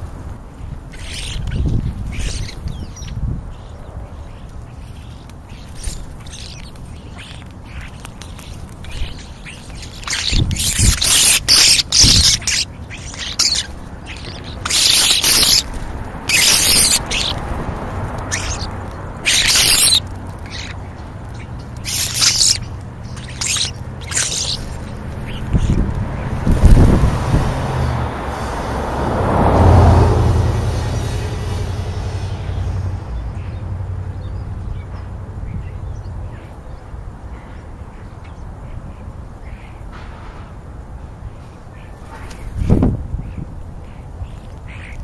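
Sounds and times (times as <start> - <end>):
starlings harsh hissing calls: 0.9 - 29.0, 30.3 - 33.6.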